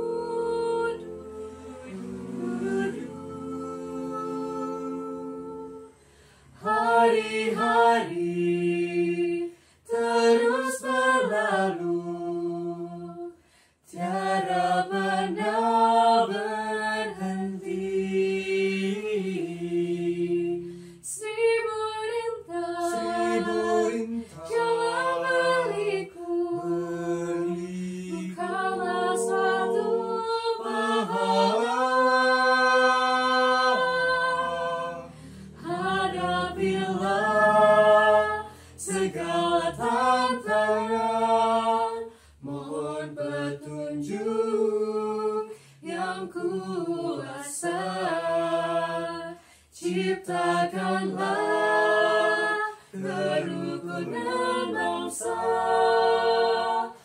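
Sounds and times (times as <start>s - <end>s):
vocal group singing in harmony: 0.0s - 57.0s
singers breathing: 5.9s - 6.6s, 9.5s - 9.9s, 13.4s - 13.9s, 20.6s - 21.0s, 35.1s - 35.6s, 38.5s - 38.8s, 42.1s - 42.4s, 45.5s - 45.8s, 49.4s - 49.8s.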